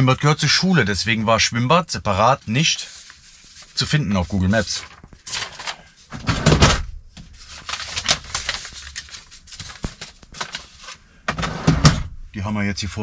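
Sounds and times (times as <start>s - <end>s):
paper rustling: 2.2s - 6.0s, 7.2s - 11.2s.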